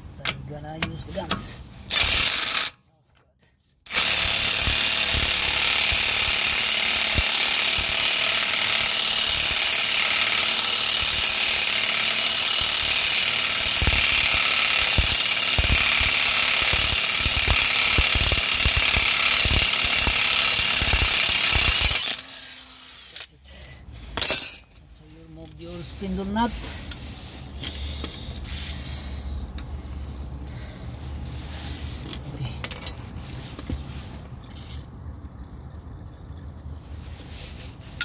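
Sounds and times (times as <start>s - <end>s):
impact wrench hammering: 3.9s - 22.5s, 24.2s - 24.8s.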